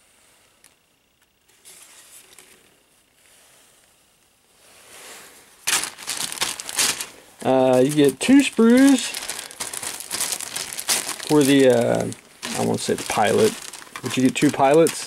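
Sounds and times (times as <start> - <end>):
plastic bags rustling: 5.6 - 15.0.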